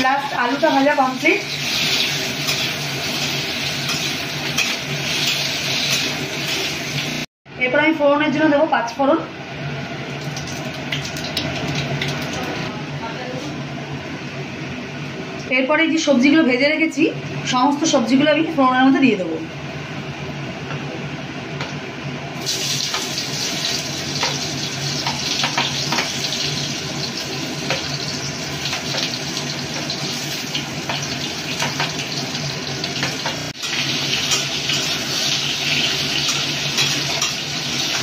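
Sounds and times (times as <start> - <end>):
vegetables sizzling in hot oil: 0.0 - 7.3, 22.4 - 38.0.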